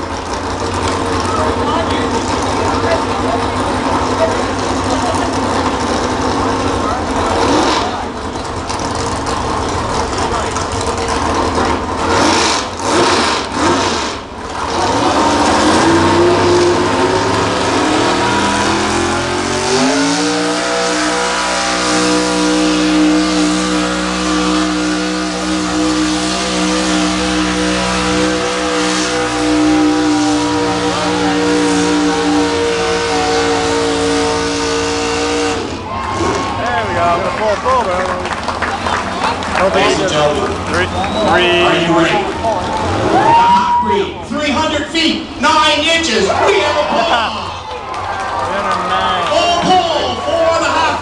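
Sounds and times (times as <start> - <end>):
truck engine revving hard: 0.0 - 51.0.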